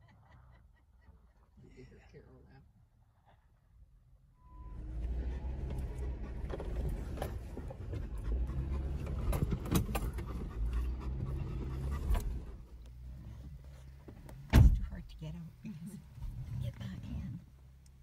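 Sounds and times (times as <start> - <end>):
engine and drivetrain rumble: 4.4 - 18.0
knocks clunks and rattles: 5.5 - 12.6, 14.0 - 15.0.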